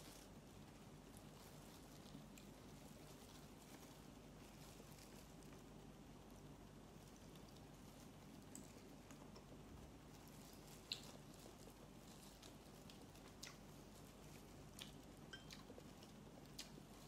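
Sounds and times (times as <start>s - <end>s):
low room hum: 0.0s - 17.0s
chewing clicks and smacks: 10.7s - 11.6s, 12.3s - 13.8s, 14.7s - 16.9s.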